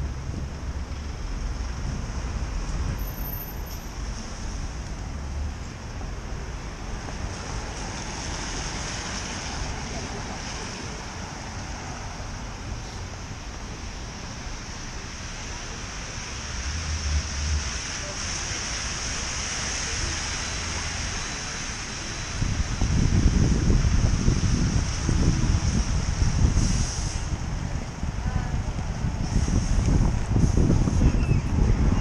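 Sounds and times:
wind rumbling on microphone: 0:00.0 - 0:03.1, 0:21.7 - 0:32.0
traffic noise: 0:00.0 - 0:32.0.

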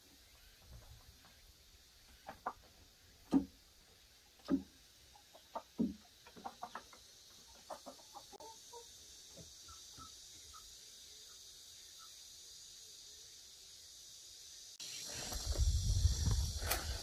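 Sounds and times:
chicken clucking: 0:02.1 - 0:03.5, 0:04.4 - 0:10.7.

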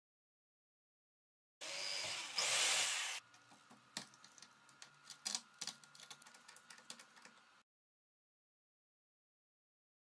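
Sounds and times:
electric drill drilling plastic: 0:01.6 - 0:03.2.

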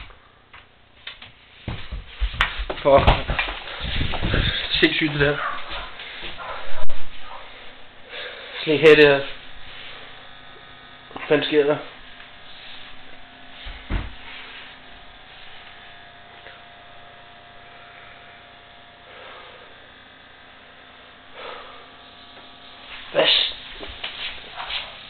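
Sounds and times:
electrical buzzing hum: 0:00.0 - 0:25.0
low thump: 0:13.7 - 0:14.2.

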